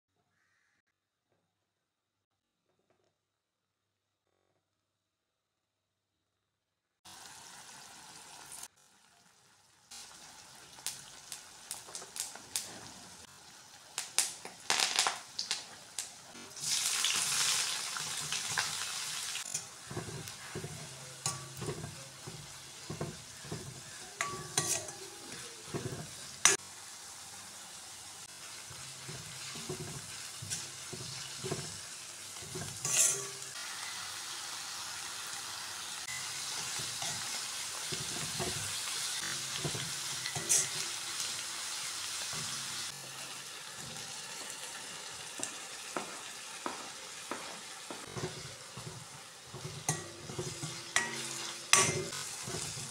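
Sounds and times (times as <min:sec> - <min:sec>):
onions sizzling in oil: 0:07.1 - 0:52.9
spoon scraping a pan: 0:18.0 - 0:26.6, 0:28.4 - 0:34.0, 0:36.0 - 0:41.4, 0:42.1 - 0:42.9, 0:45.4 - 0:52.9.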